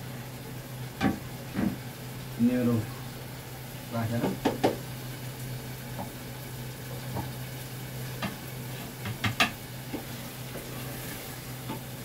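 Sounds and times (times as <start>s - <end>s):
gas burner hiss: 0.0s - 12.0s
utensil knocking against pot: 4.2s - 4.8s.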